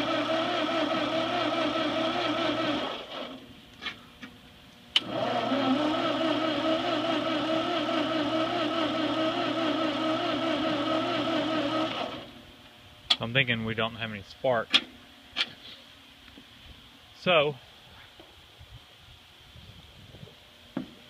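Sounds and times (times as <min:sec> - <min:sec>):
engine cranking on starter: 0:00.0 - 0:03.4, 0:04.9 - 0:12.3.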